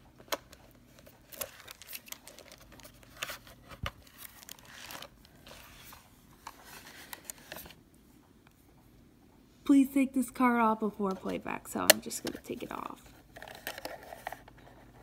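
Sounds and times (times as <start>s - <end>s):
plastic wrap crinkling: 0.8s - 7.8s.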